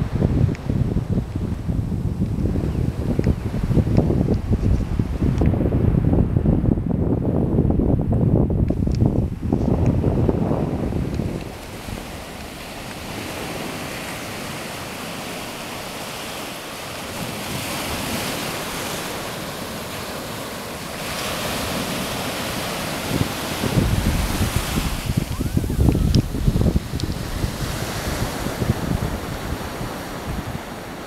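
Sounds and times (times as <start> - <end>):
wind buffeting microphone: 0.0 - 31.0
waves breaking on beach: 8.8 - 31.0.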